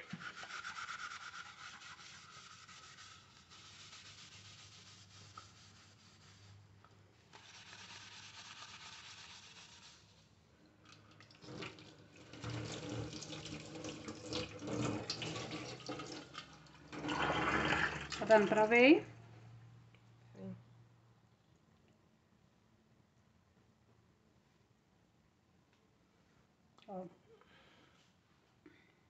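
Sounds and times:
sponge scrubbing metal lid: 0.0s - 6.5s
tap water running: 10.9s - 18.8s.

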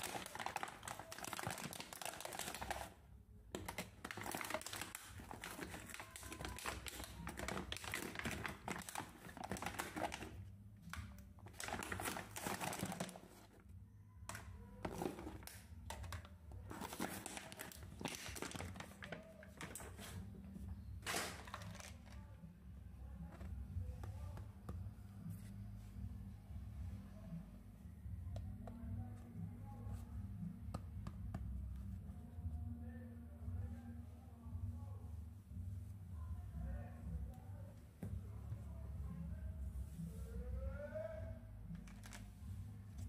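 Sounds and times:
plastic packaging crinkling: 0.0s - 2.9s, 3.6s - 10.4s, 11.4s - 13.6s, 14.9s - 20.2s, 21.0s - 22.2s.

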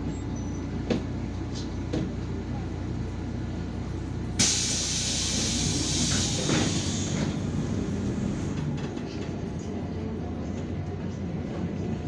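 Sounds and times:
bus engine idling: 0.0s - 12.0s
loud air hiss: 4.4s - 7.2s.

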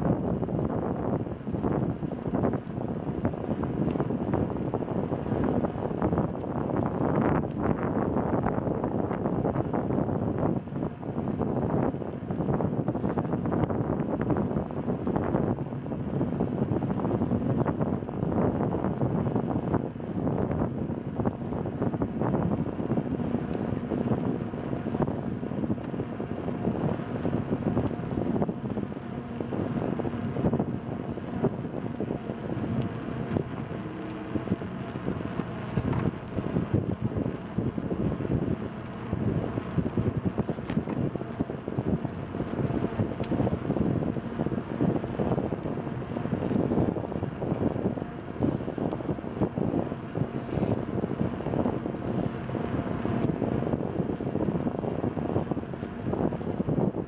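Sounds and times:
wind rushing over microphone: 0.0s - 57.0s
bicycle rolling on pavement: 18.6s - 28.8s, 29.5s - 57.0s.

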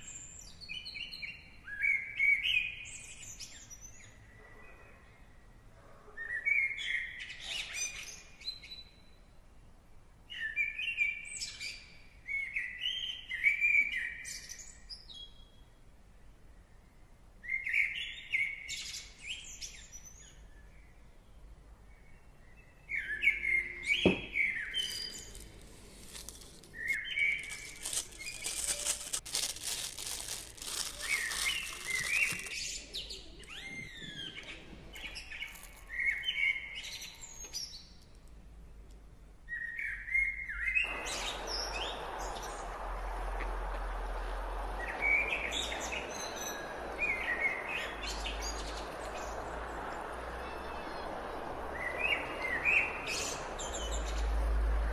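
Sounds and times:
birds chirping: 22.5s - 38.0s, 39.5s - 54.9s.

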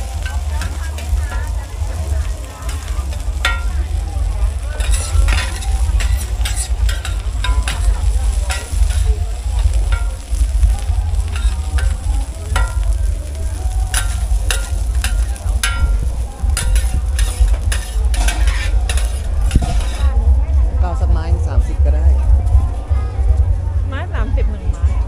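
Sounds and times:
food sizzling in a pan: 0.0s - 20.2s
low rumble: 0.0s - 25.0s
metal spatula clinking on pan: 2.7s - 4.0s, 4.8s - 10.4s, 11.3s - 13.1s, 13.9s - 20.1s.

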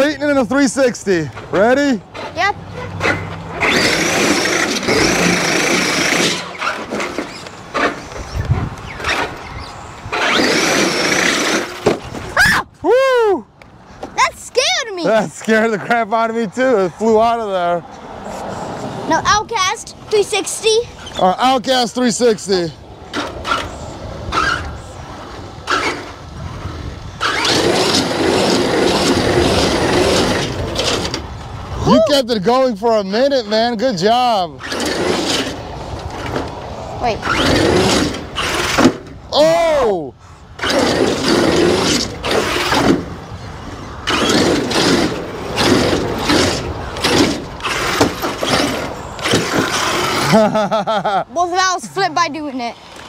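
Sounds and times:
toy truck motor whining: 3.1s - 11.9s, 25.6s - 26.2s, 27.2s - 31.2s, 34.6s - 35.6s, 37.0s - 39.1s, 40.6s - 43.1s, 43.8s - 50.5s
tyre noise in concrete pipe: 37.2s - 51.1s.

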